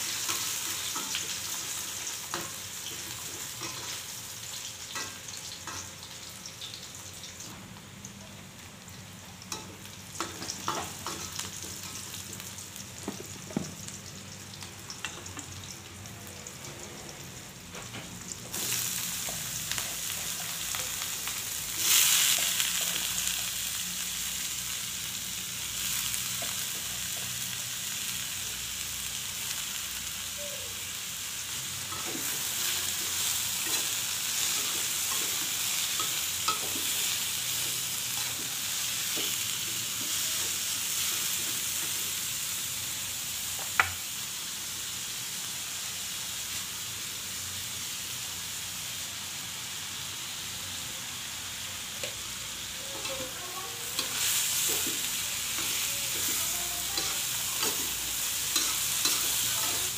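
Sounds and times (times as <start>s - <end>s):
vegetables sizzling in wok: 0.0s - 59.9s
metal spatula scraping wok: 53.0s - 59.9s.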